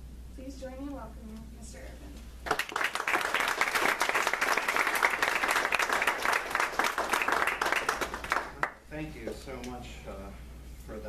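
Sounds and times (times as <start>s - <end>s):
audience applauding: 2.4s - 8.8s.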